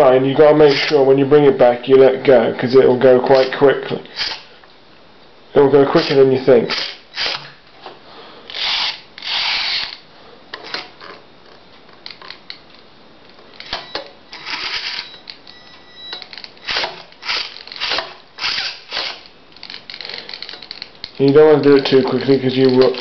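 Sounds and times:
servos whirring: 8.5 - 10.0, 13.6 - 23.0.

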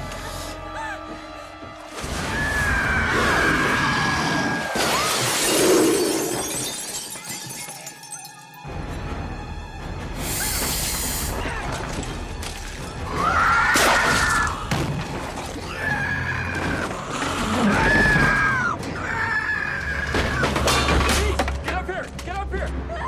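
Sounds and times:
tense orchestral horror music: 0.0 - 6.0, 8.5 - 23.0
window glass shattering: 4.8 - 8.5.

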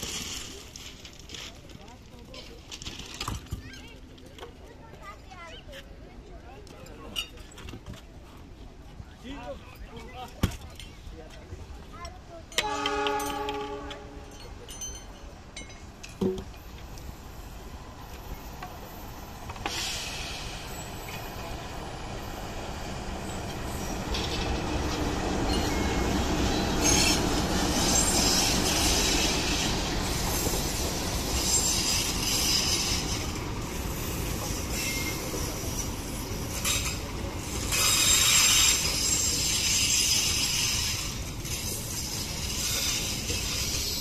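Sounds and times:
train wheels on rails: 0.0 - 44.0
locomotive engine rumble: 11.0 - 44.0
high wheel squeal: 31.4 - 33.4, 34.0 - 36.9.

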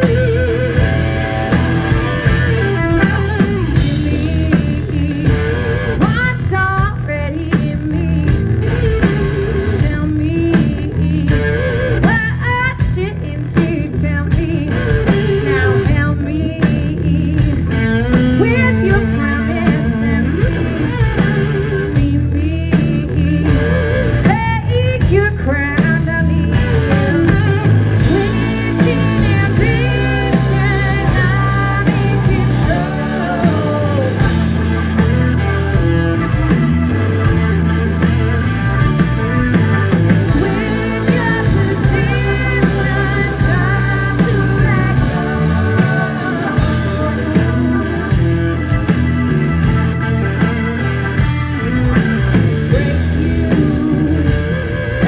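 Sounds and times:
blues-rock band playing: 0.0 - 55.0
woman singing: 2.7 - 8.5, 9.4 - 34.8, 40.1 - 48.2, 52.7 - 55.0.

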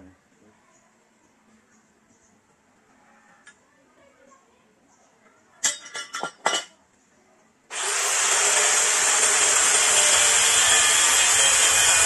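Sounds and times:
power tool abrasive hiss: 7.7 - 12.0.

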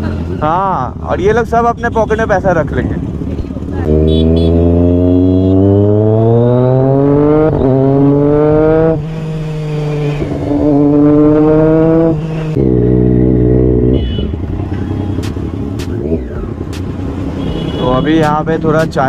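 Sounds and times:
motorcycle engine accelerating: 2.6 - 17.7.

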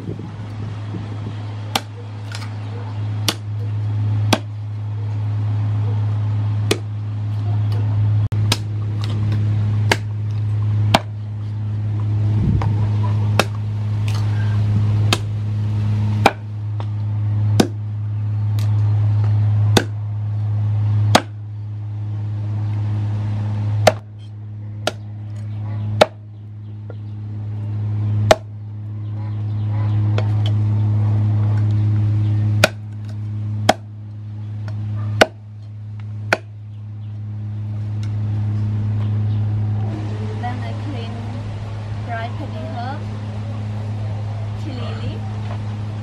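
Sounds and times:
steady low hum: 0.0 - 46.0
cleaver chopping on wooden board: 1.7 - 2.5, 4.3 - 4.5, 6.7 - 6.9, 9.9 - 10.1, 10.9 - 11.2, 16.2 - 16.5, 17.6 - 17.8, 19.7 - 20.0, 21.1 - 21.4, 23.8 - 24.1, 24.8 - 25.0, 26.0 - 26.2, 28.3 - 28.5, 32.6 - 33.0, 33.7 - 33.9, 35.2 - 35.4, 36.3 - 36.5.

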